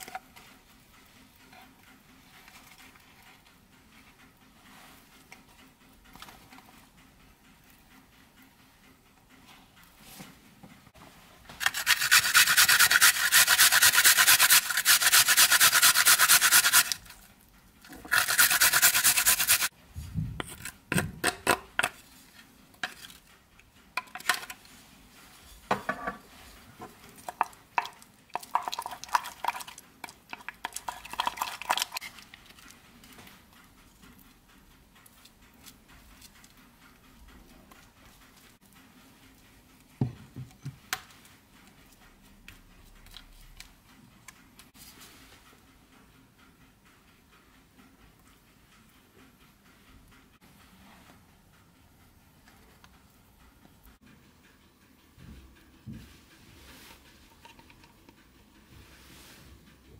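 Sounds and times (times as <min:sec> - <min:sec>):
wooden spatula scraping bowl: 0:11.6 - 0:17.1, 0:17.9 - 0:19.7
garlic scraping on metal grater: 0:11.6 - 0:17.2, 0:17.9 - 0:19.7.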